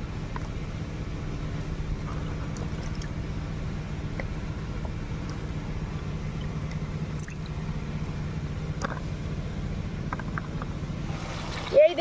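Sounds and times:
steady low hum: 0.0 - 12.0
small water splashes: 2.0 - 3.3, 5.2 - 7.8, 11.0 - 12.0.

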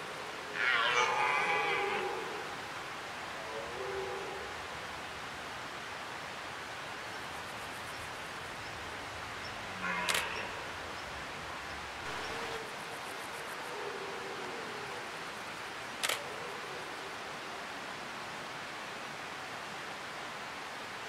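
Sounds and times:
steady outdoor hiss: 0.0 - 21.0
camera shutter click: 10.1 - 10.3, 16.0 - 16.2.

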